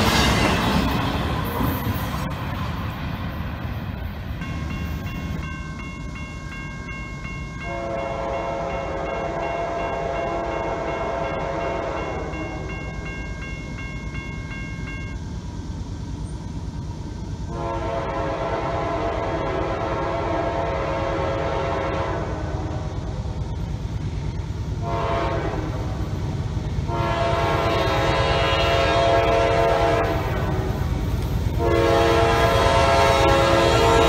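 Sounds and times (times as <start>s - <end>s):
crossing warning bell dinging: 1.8s - 15.5s
locomotive air horn: 7.6s - 12.7s, 17.5s - 23.0s, 24.8s - 26.1s, 26.9s - 30.9s, 31.6s - 34.0s.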